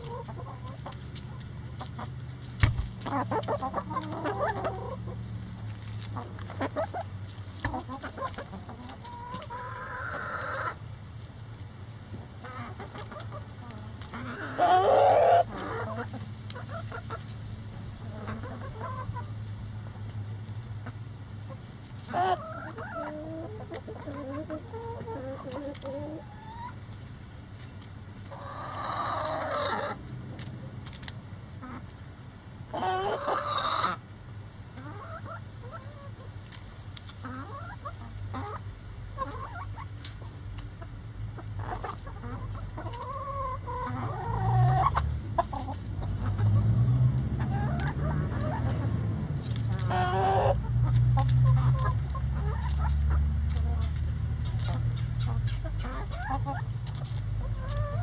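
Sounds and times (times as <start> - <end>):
hens clucking: 0.0 - 34.1, 34.7 - 58.0
loud long chicken calls: 3.1 - 5.2, 7.8 - 10.8, 12.4 - 17.2, 28.3 - 30.0, 32.7 - 34.0, 41.6 - 46.6, 49.7 - 53.2.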